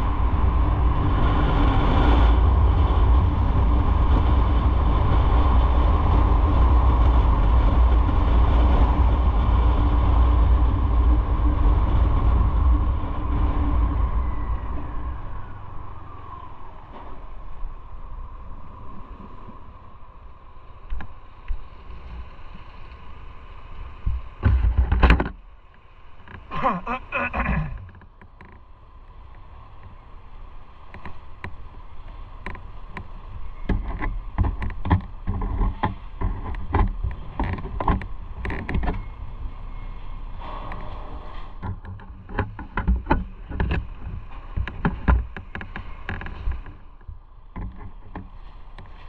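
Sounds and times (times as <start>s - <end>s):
motorcycle engine rumbling: 24.4s - 29.3s
loud rush of noise: 26.3s - 28.0s.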